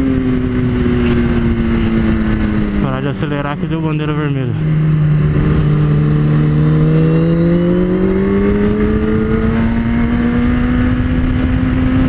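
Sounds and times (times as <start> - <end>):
motorcycle engine accelerating: 0.0 - 12.0
wind noise: 4.6 - 12.0.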